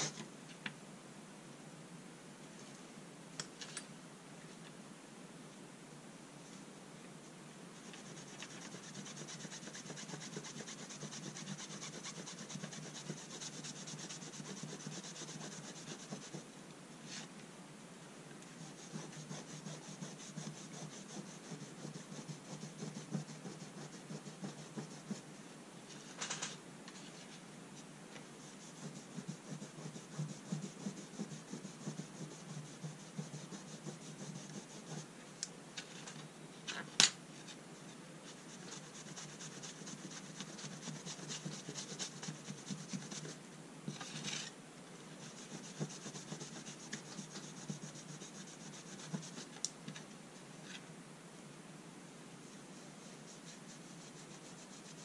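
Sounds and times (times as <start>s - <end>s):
cloth pad scrubbing metal: 8.0s - 16.3s.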